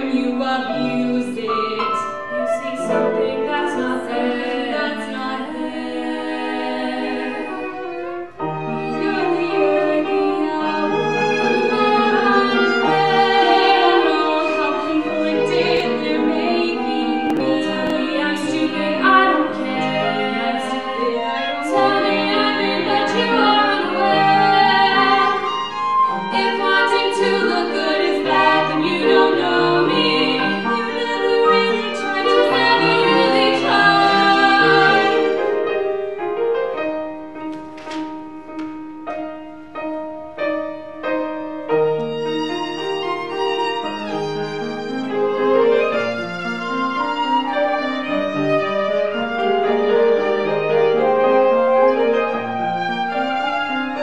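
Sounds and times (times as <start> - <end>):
women singing: 0.0 - 7.9, 8.8 - 35.5
piano: 0.0 - 54.0
violin: 0.0 - 54.0
flute: 0.1 - 36.1, 43.4 - 54.0.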